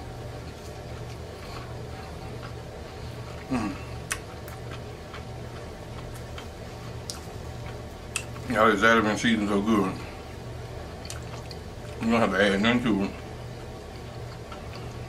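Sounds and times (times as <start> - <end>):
person chewing: 0.3 - 8.5, 11.0 - 12.0, 13.2 - 15.0
person humming mm: 3.4 - 4.1.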